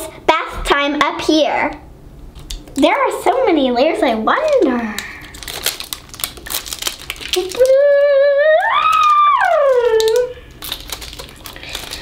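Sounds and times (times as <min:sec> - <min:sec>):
wrapper crackling: 0:04.3 - 0:07.9, 0:08.6 - 0:12.0
person humming: 0:07.4 - 0:10.5.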